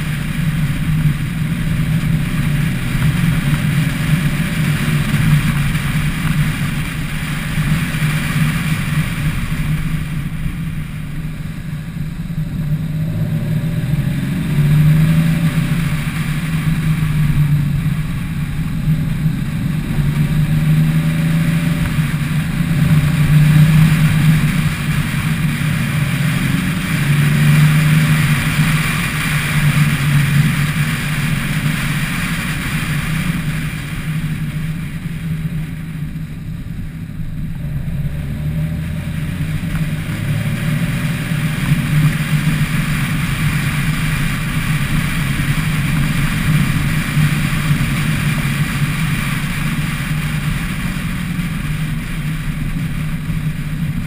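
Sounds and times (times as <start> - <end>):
car engine running: 0.0 - 54.0
wind and road noise: 0.0 - 54.0.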